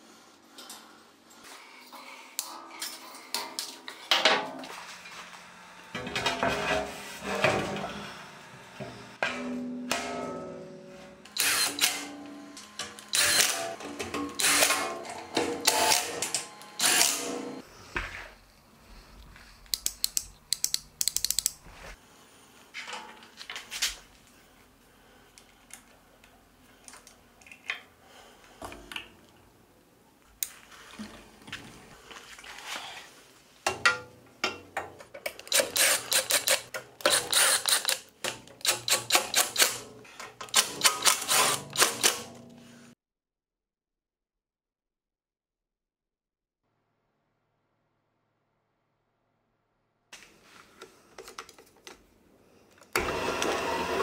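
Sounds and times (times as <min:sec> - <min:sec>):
power driver driving bolts: 0:11.3 - 0:17.4, 0:35.3 - 0:39.8
handling clicks: 0:19.7 - 0:21.6.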